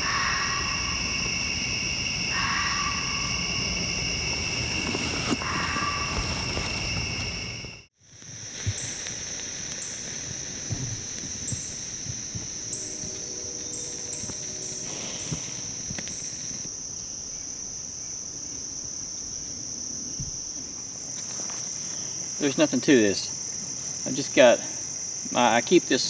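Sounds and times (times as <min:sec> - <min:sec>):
cricket chirps: 0:00.0 - 0:26.0
crickets droning: 0:00.0 - 0:26.0
wood fire crackling: 0:03.5 - 0:16.7.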